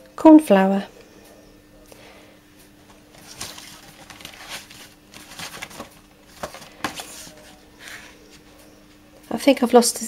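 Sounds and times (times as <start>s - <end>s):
faint steady hum: 0.0s - 10.0s
paper packets rustling: 2.9s - 9.0s.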